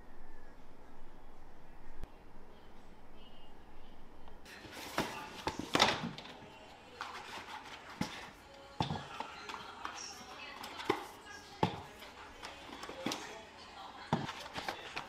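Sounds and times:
cardboard box handled: 4.5s - 6.4s, 7.0s - 13.2s.

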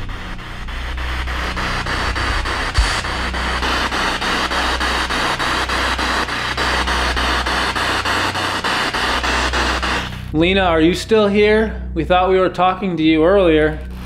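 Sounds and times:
radio scanner static hiss: 0.0s - 10.4s.

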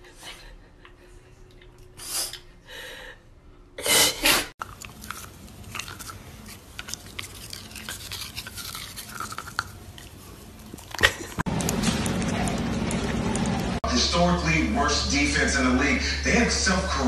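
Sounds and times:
dog sneezing: 3.8s - 4.5s
dog chewing a toothbrush: 4.6s - 13.8s.

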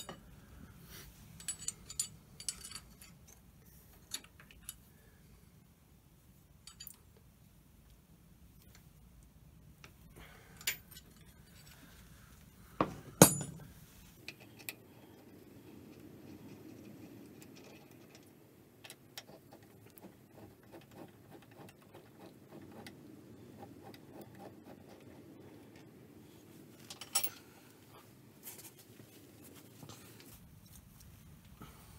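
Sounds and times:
metal tools clinking and knocking: 1.4s - 3.4s, 12.8s - 13.7s, 26.8s - 27.5s.

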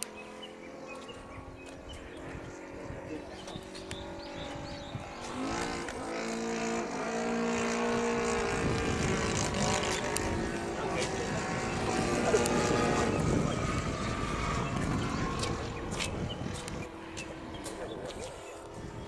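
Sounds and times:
model plane engine in flight: 0.0s - 19.0s.

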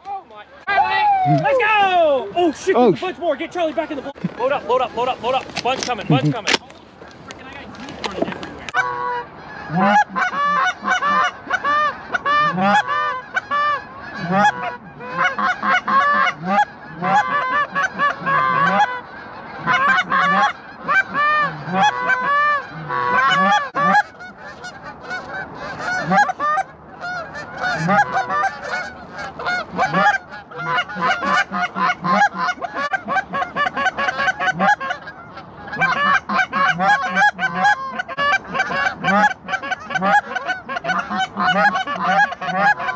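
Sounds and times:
geese honking: 0.4s - 42.9s.

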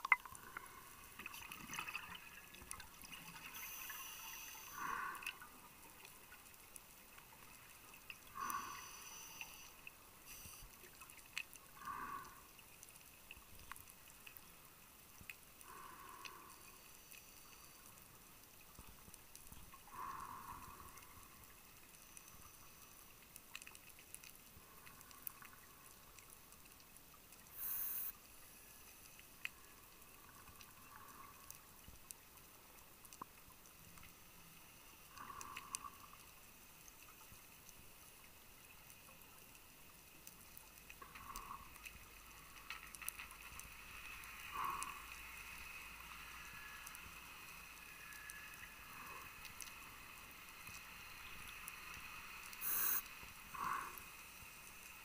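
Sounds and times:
clicks and crackles of reef life: 0.0s - 55.0s
scuba regulator hissing and bubbling: 27.6s - 28.2s, 52.6s - 54.1s.

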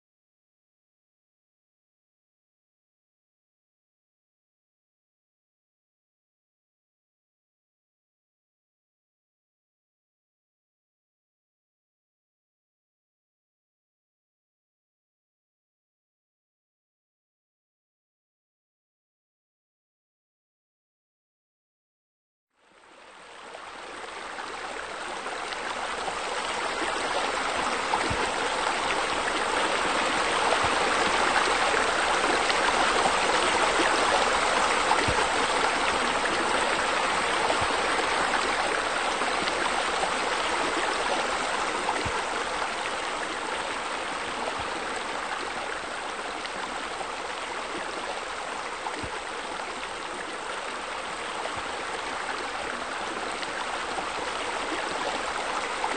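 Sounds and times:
flowing water rushing: 22.8s - 55.9s.

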